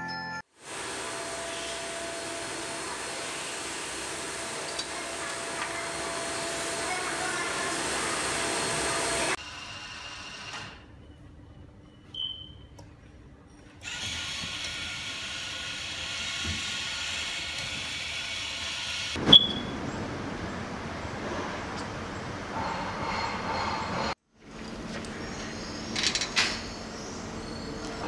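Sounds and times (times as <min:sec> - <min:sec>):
steady mechanical hum: 0:00.6 - 0:28.0
mechanism whirring with clicks: 0:25.9 - 0:26.8.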